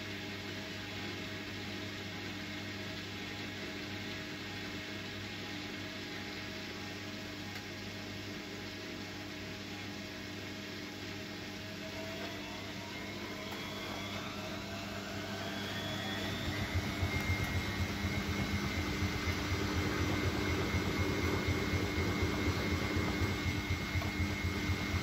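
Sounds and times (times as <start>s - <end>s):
washing machine motor whine: 0.0s - 25.0s
fast pulsing rumble: 13.0s - 25.0s.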